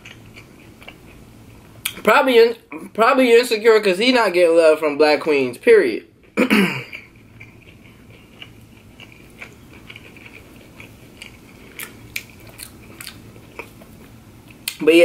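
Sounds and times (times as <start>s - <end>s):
chewing crispy food: 0.0s - 2.0s, 6.2s - 14.8s.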